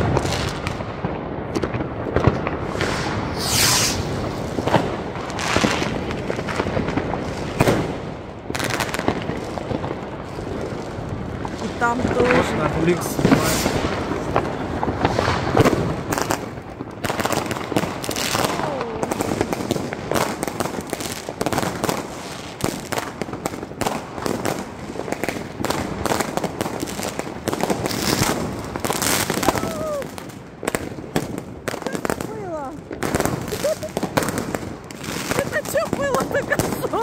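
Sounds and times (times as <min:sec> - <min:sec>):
firework battery shots: 0:00.0 - 0:09.9, 0:11.4 - 0:30.2
fireworks banging and crackling: 0:00.0 - 0:37.0
firework whistles falling in pitch: 0:02.8 - 0:04.2.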